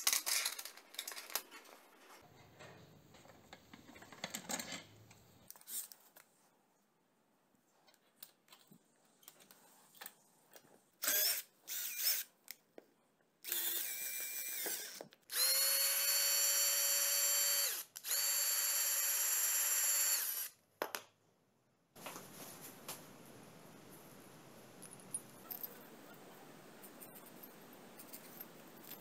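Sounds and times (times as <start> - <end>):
cordless drill motor whine: 13.5 - 20.5.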